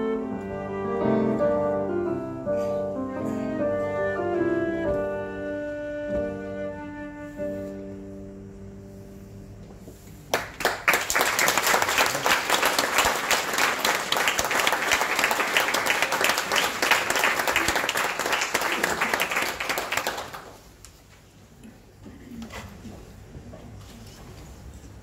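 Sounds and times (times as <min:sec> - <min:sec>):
audience applauding: 0:10.3 - 0:20.8.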